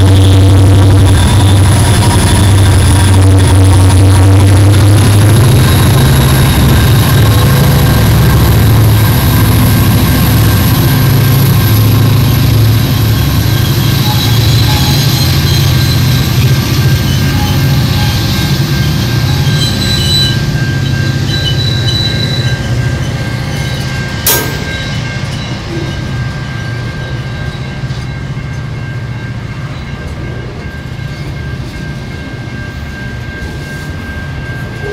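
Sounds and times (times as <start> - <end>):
train wheels rumbling: 0.0 - 34.9
high-pitched wheel squeal: 11.8 - 24.0.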